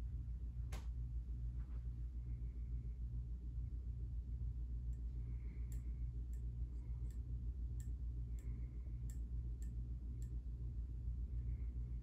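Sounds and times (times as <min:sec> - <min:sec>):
ceiling fan motor humming: 0:00.0 - 0:12.0
light ticks of fan: 0:00.5 - 0:03.8, 0:04.5 - 0:12.0.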